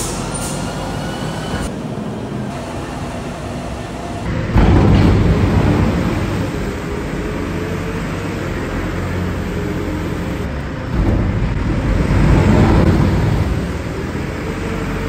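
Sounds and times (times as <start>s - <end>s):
tractor engine running: 1.6s - 15.0s.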